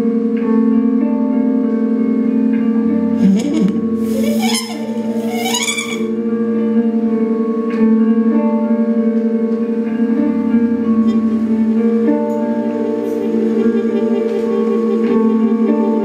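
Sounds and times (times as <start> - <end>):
electric guitar: 0.0 - 16.0
trumpet: 3.2 - 6.2.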